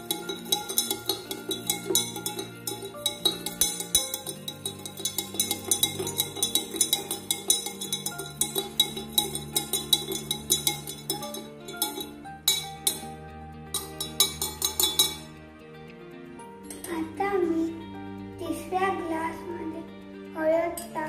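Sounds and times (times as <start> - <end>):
metal spoon clinking glass: 0.0 - 15.3
background music: 0.0 - 21.0.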